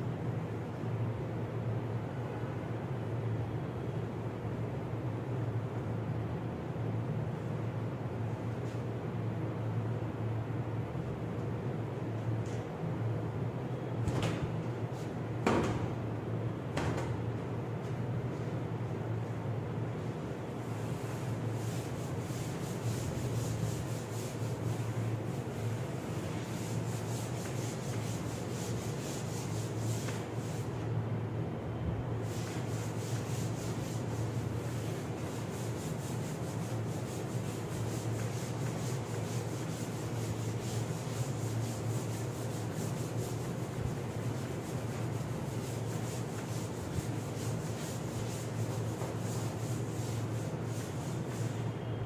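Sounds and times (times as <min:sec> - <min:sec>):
cloth rubbing over chalkboard: 0:20.5 - 0:30.8, 0:32.2 - 0:51.7.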